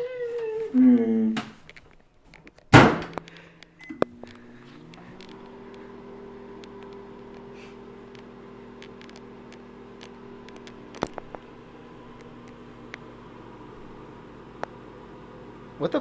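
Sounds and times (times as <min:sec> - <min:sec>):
microwave door banging shut: 0:02.7 - 0:03.1
microwave oven humming: 0:02.7 - 0:16.0.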